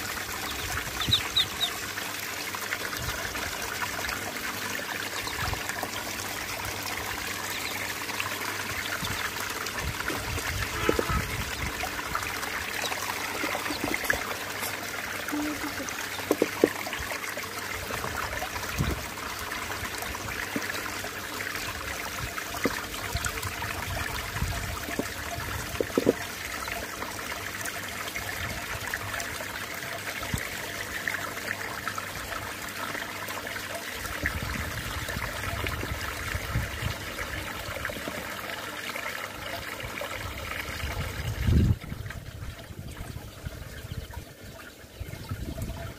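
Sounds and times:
water sloshing in a plastic tub: 5.0 - 26.7.

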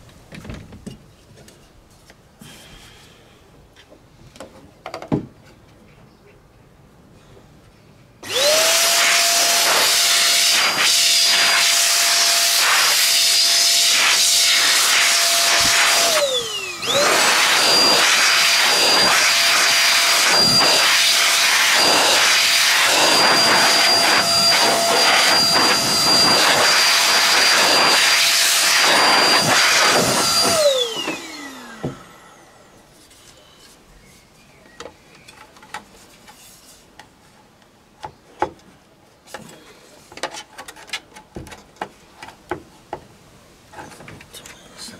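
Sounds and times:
air blower rushing: 8.2 - 32.9.

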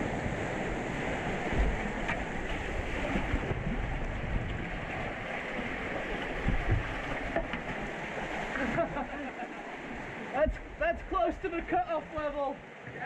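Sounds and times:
whitewater rushing: 0.0 - 13.0
low thumps against microphone: 6.4 - 7.8.

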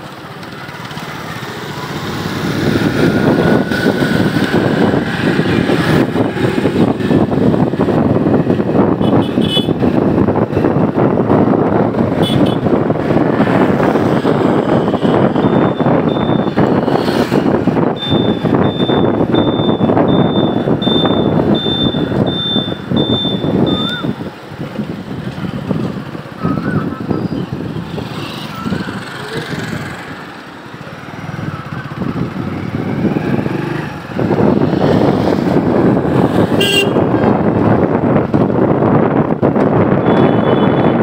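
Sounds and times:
motorcycle engine and road noise: 0.0 - 41.0
wind rush on microphone: 0.0 - 41.0
high beep: 15.3 - 17.0, 18.0 - 24.2.

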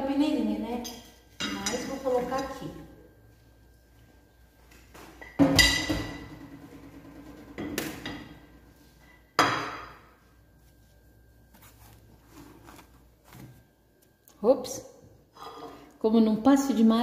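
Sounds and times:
kitchenware clanking: 0.8 - 2.6, 5.1 - 8.6.

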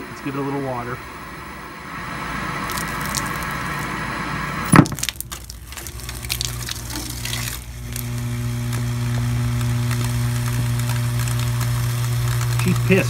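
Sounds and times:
electrical buzz: 0.0 - 13.0
water pouring: 2.6 - 3.9, 4.7 - 8.2
electrical crackling and snapping: 2.6 - 4.0, 4.7 - 13.0.

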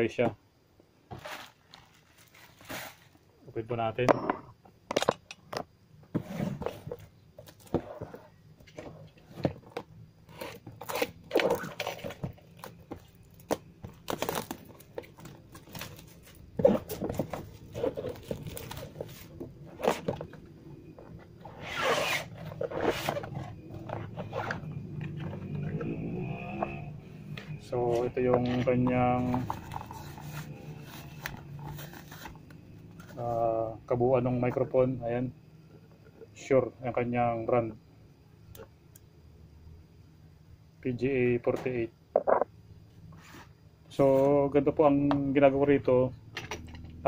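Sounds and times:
cardboard box rustling: 10.4 - 20.4.

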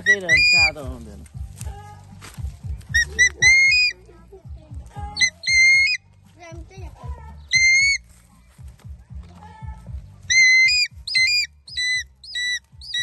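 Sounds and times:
eagle screaming: 0.0 - 0.7, 3.0 - 4.0, 5.2 - 6.0, 7.5 - 8.0, 10.3 - 13.0
background music: 0.0 - 13.0.

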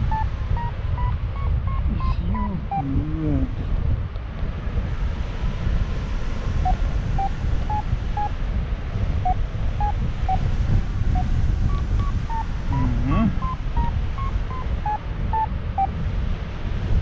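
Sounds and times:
variometer short beeps: 0.0 - 3.2, 6.6 - 8.4, 9.2 - 16.0.

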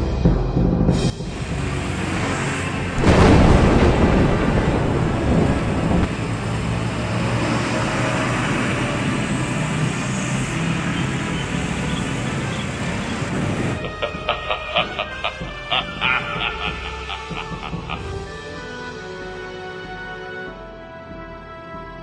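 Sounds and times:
street traffic rumble: 1.1 - 18.4
loud boom: 2.9 - 6.4.

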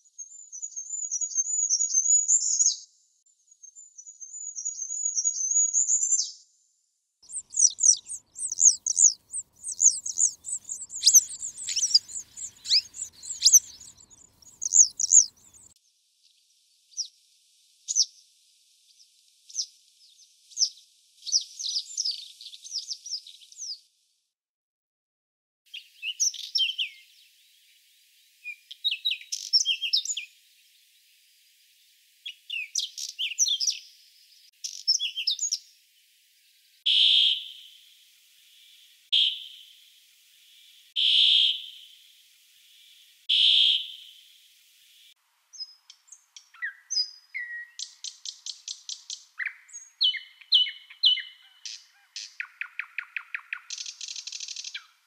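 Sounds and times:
bird chirping: 7.2 - 15.8, 25.7 - 27.7, 28.4 - 30.4, 32.2 - 35.8, 36.5 - 42.0, 42.6 - 55.0.

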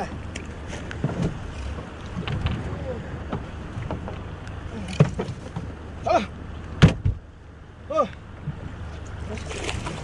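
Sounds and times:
thump against boat: 0.9 - 4.2, 4.8 - 5.7, 6.8 - 7.2.

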